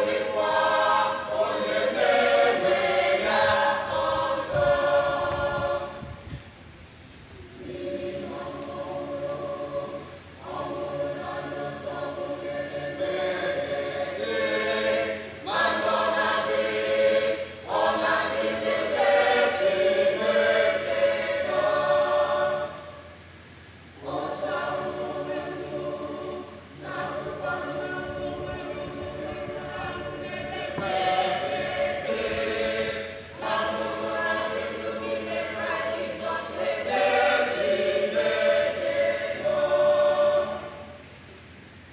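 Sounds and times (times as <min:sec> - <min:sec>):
choir singing a cappella: 0:00.0 - 0:06.4, 0:07.3 - 0:41.6.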